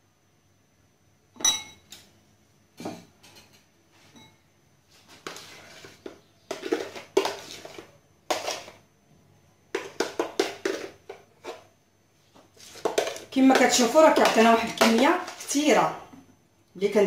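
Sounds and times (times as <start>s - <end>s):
metal spoon scraping bowls: 5.0s - 8.8s, 9.8s - 11.7s, 12.6s - 15.7s.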